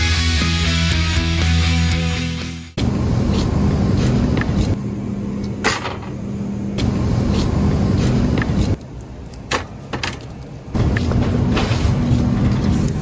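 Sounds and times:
shopping cart wheels rumbling: 0:10.7 - 0:13.0.

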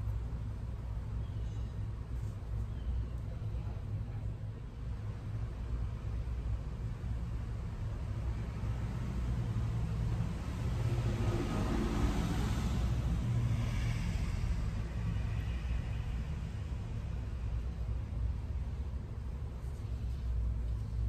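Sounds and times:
vehicle passing by: 0:08.2 - 0:18.0
steady low rumble: 0:12.3 - 0:21.0.

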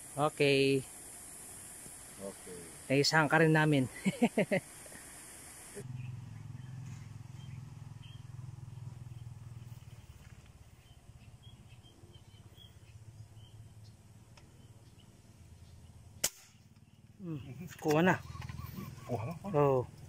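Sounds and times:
air gun shot: 0:16.2 - 0:16.7.

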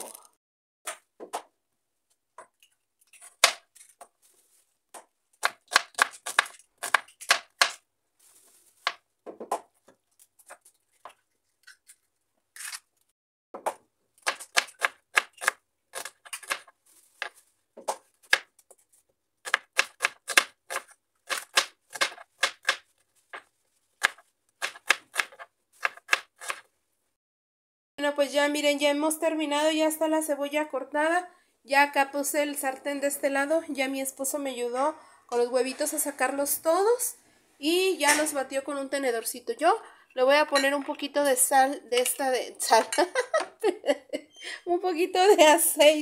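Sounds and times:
knife chopping on cutting board: 0:19.5 - 0:22.9, 0:24.0 - 0:26.6.

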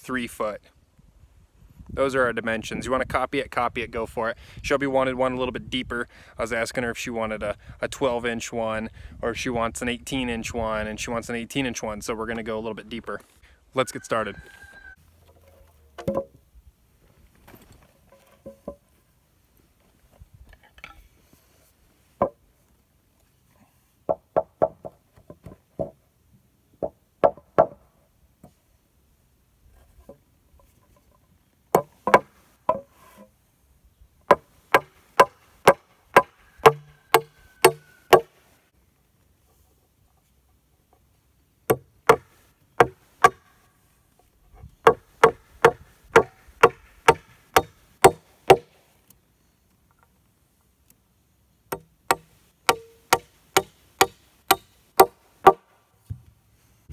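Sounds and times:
hammer nailing boards: 0:31.8 - 0:32.9, 0:34.3 - 0:38.3, 0:41.7 - 0:43.5, 0:44.9 - 0:48.8, 0:51.7 - 0:55.6.

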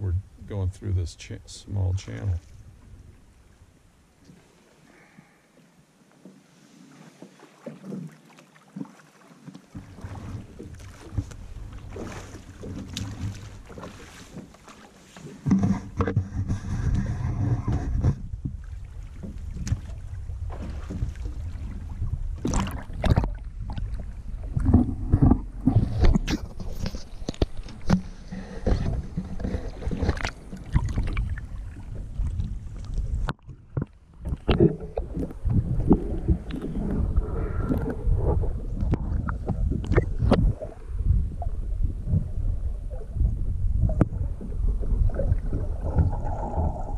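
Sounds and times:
sharp splashes and knocks: 0:07.2 - 0:36.8
river water rushing underwater: 0:27.7 - 0:46.9.

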